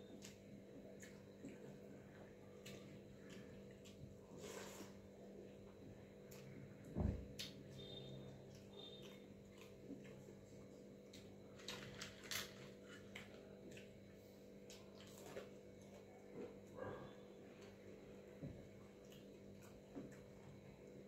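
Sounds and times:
chewing: 0:00.1 - 0:04.9, 0:08.5 - 0:16.8, 0:18.8 - 0:20.5.

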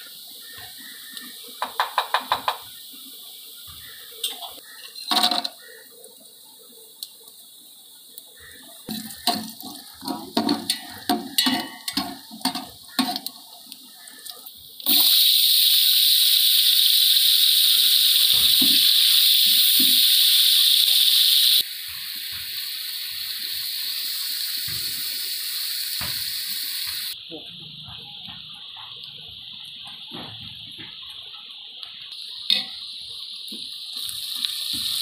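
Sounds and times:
onions sizzling in hot oil: 0:00.0 - 0:35.0
knocks against metal pot: 0:01.6 - 0:02.7, 0:08.9 - 0:13.3.

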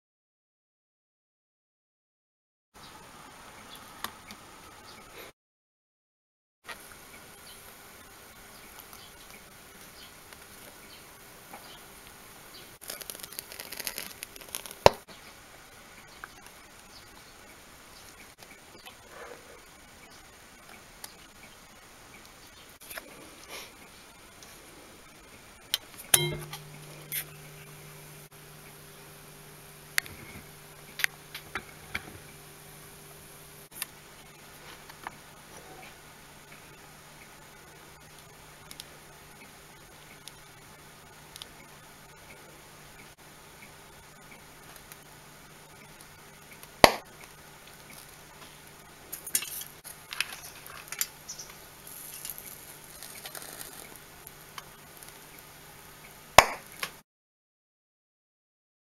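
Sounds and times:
low hum: 0:24.3 - 0:43.1.

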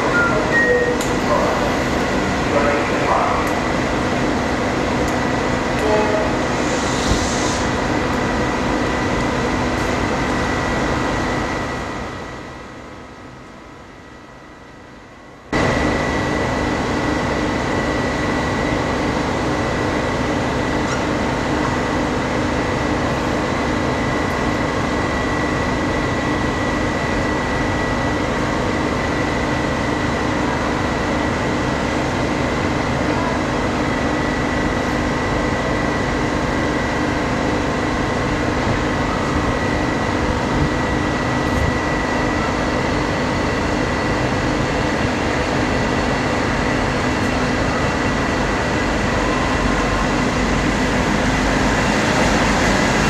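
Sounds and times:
thin high whine: 0:00.0 - 0:03.4
diesel locomotive drone: 0:00.0 - 0:53.0.

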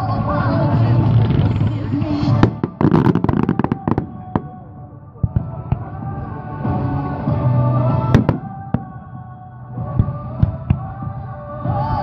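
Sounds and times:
music: 0:00.0 - 0:12.0
fireworks bursting with bangs: 0:00.8 - 0:06.0, 0:08.0 - 0:09.2.

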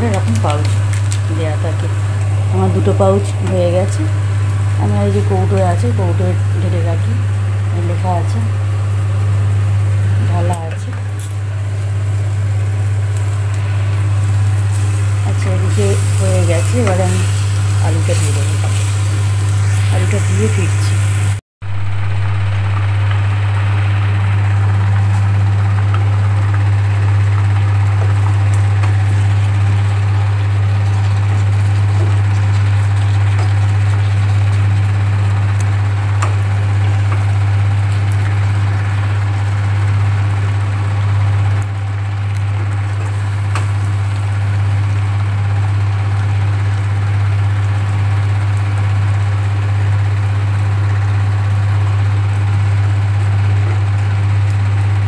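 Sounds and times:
loud low motor hum: 0:00.0 - 0:55.0.

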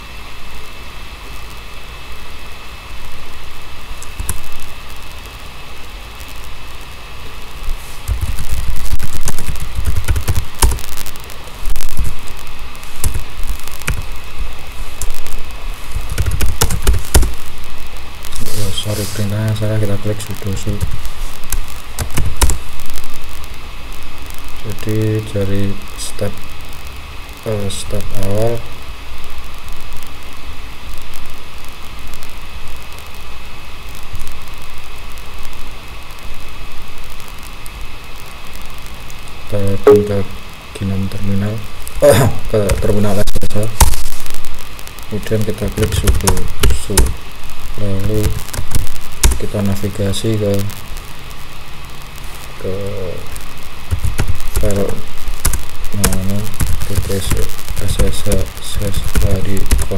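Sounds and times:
background hiss: 0:00.0 - 0:59.9
high whine: 0:39.5 - 0:40.8
faint high whine: 0:39.5 - 0:42.4.

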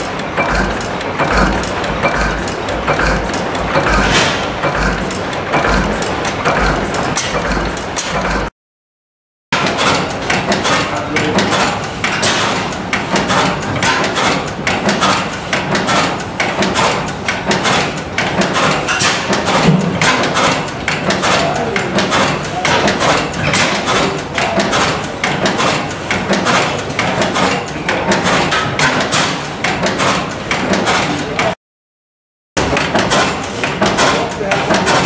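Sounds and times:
deep rhythmic thump: 0:00.0 - 0:08.5, 0:13.1 - 0:22.2
stationary gas engines running: 0:00.0 - 0:08.5, 0:09.6 - 0:31.6, 0:32.6 - 0:35.0.

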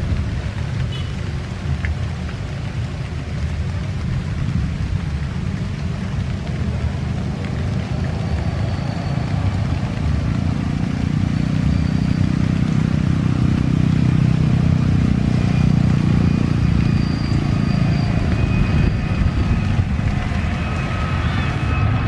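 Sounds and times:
rain hissing: 0:00.0 - 0:22.0
thin jet engine whine: 0:15.6 - 0:22.0
jet airliner rumble on takeoff: 0:16.2 - 0:22.0.

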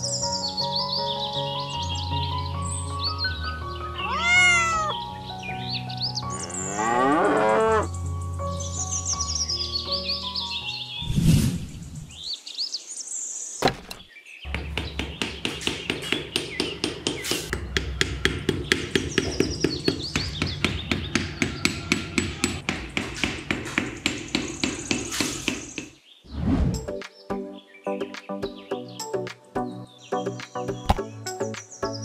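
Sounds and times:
birds chirping: 0:00.0 - 0:32.0
hammer striking: 0:13.6 - 0:25.9.

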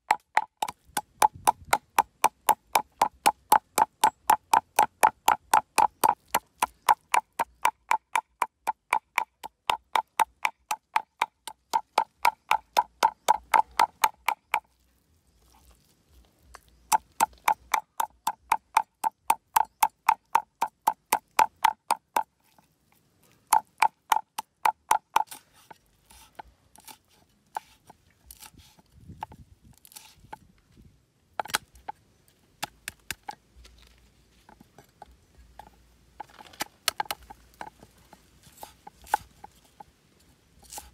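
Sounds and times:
cleaver chopping on wooden board: 0:00.0 - 0:14.7, 0:16.9 - 0:22.3, 0:23.5 - 0:25.4.

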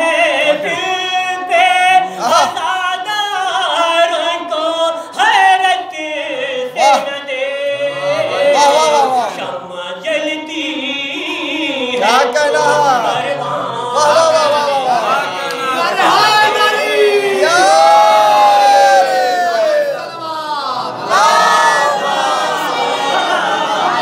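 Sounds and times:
man singing into a microphone: 0:00.0 - 0:15.0.

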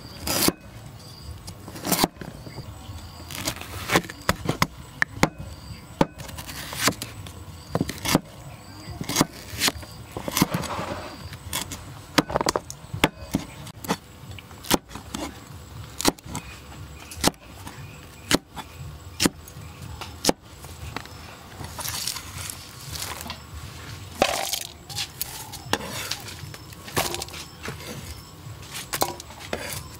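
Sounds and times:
cleaver striking chopping board: 0:06.0 - 0:07.0, 0:07.8 - 0:08.3.

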